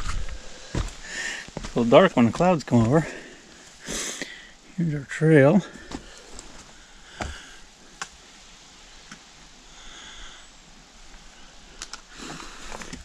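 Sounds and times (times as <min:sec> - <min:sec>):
person breathing: 0:00.0 - 0:01.6, 0:03.0 - 0:04.7, 0:05.6 - 0:08.0, 0:09.7 - 0:10.6, 0:11.3 - 0:13.0.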